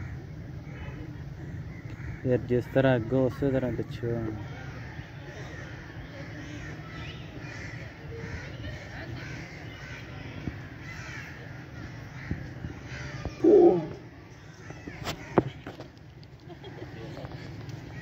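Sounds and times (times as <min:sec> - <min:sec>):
crows cawing: 0:00.0 - 0:15.9
small birds chattering: 0:00.0 - 0:18.0
loud short bird call: 0:13.0 - 0:14.0.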